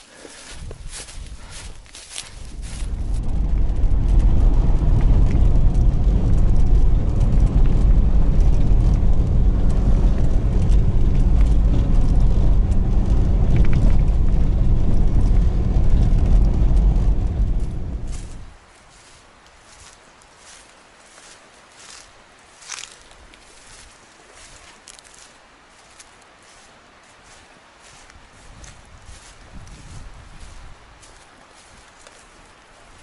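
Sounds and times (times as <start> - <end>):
car engine and tyres rumbling: 0.2 - 33.0.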